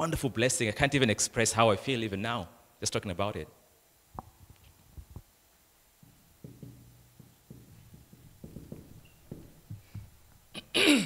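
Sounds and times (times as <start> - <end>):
marker writing on whiteboard: 6.0 - 10.2.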